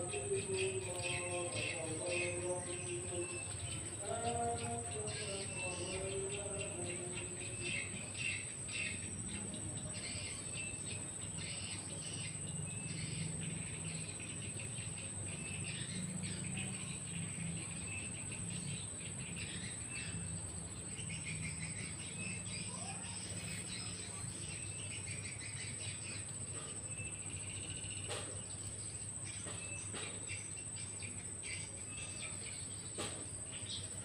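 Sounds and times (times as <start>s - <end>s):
insects high-pitched whine: 0.0s - 34.0s.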